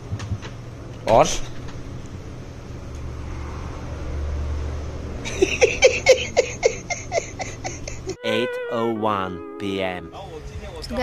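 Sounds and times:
person laughing: 0:05.2 - 0:09.3.

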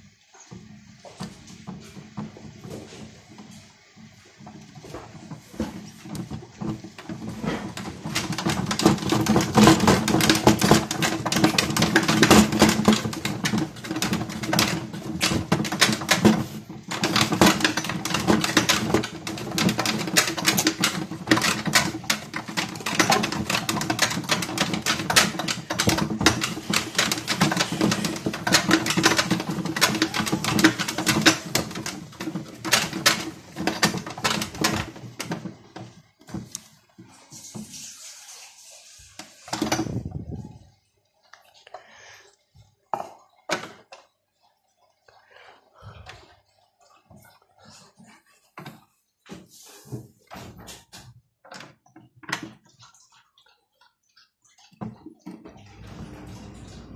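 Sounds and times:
toy washing machine motor hum: 0:00.0 - 0:49.3, 0:51.5 - 0:56.9
rapid rattle of clicks: 0:05.9 - 0:35.9.

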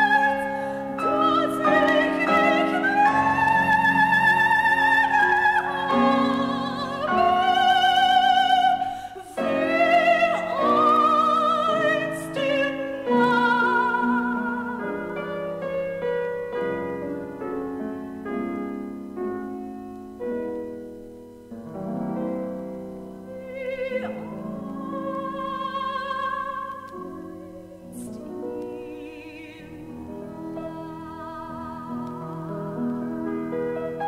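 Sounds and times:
soprano singing: 0:00.0 - 0:19.8, 0:21.7 - 0:34.0
piano chords: 0:00.0 - 0:34.0.

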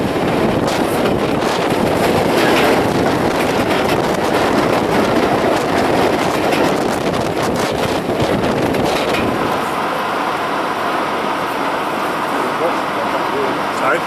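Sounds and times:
wheels clicking over rail joints: 0:00.0 - 0:10.0
wind buffeting microphone: 0:00.0 - 0:12.3
train passing with rumble: 0:00.0 - 0:14.0.

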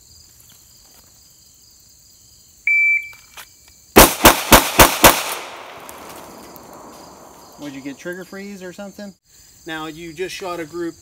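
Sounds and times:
pistol firing rapid shots: 0:04.0 - 0:06.9.

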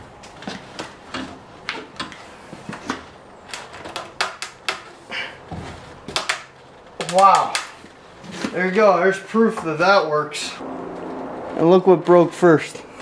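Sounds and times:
plastic creaking and cracking: 0:00.2 - 0:04.9.

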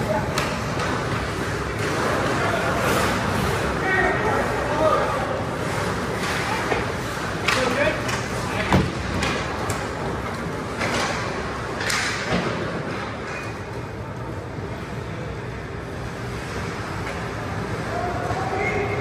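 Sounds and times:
skates scraping ice: 0:00.0 - 0:13.8.

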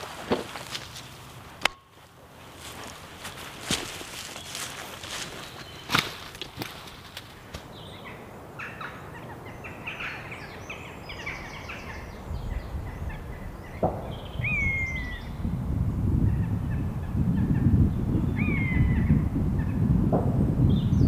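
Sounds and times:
birds chirping and whistling: 0:04.4 - 0:06.3, 0:07.7 - 0:15.5, 0:16.3 - 0:19.9, 0:20.6 - 0:21.0
wind rumble on microphone: 0:09.2 - 0:21.0.

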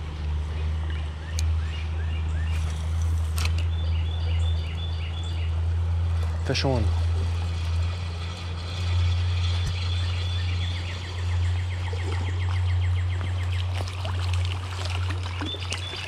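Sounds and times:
steady low rumble: 0:00.0 - 0:15.4
fish splashing at the surface: 0:13.3 - 0:16.0.

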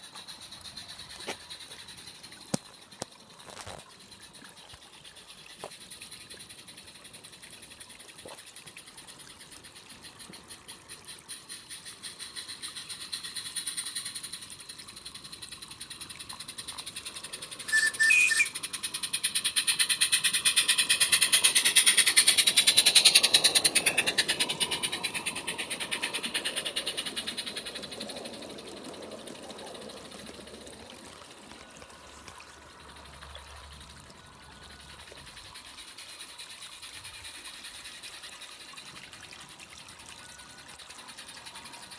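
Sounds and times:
model steam locomotive chuffing: 0:00.0 - 0:41.9
steam whistle: 0:17.7 - 0:18.6.

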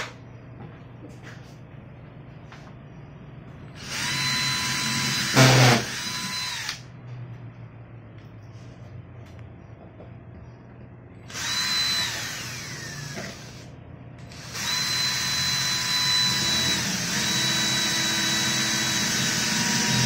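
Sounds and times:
power drill boring into wood: 0:03.8 - 0:06.8, 0:11.3 - 0:13.6, 0:14.3 - 0:20.0.

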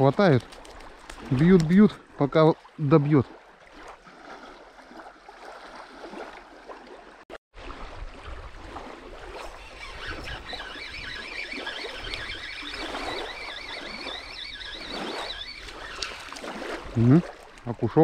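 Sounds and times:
fishing reel squeaky whine: 0:09.4 - 0:16.4.

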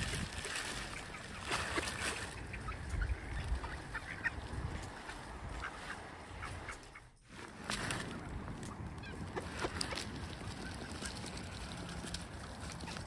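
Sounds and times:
ducks quacking: 0:00.8 - 0:07.2.

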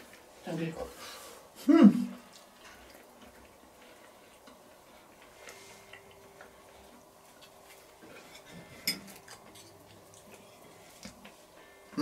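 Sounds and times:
faint steady hum: 0:00.0 - 0:12.0
cutlery clinking on a plate: 0:08.2 - 0:09.2.

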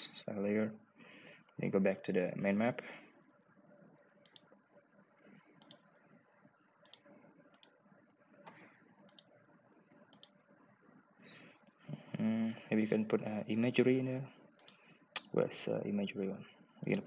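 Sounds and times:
faint computer mouse clicks: 0:04.2 - 0:04.6, 0:05.6 - 0:05.9, 0:06.8 - 0:07.8, 0:08.4 - 0:09.3, 0:10.1 - 0:10.4, 0:14.6 - 0:15.3.

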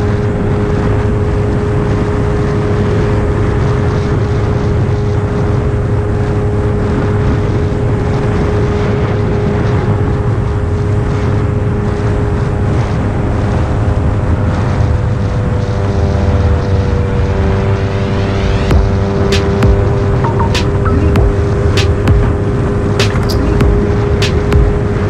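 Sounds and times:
motorcycle engine running: 0:18.7 - 0:20.4, 0:23.0 - 0:25.0.

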